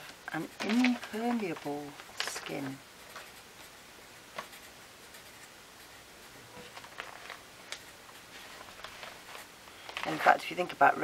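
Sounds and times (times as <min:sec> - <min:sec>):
marker scratching on paper: 0:04.4 - 0:06.4.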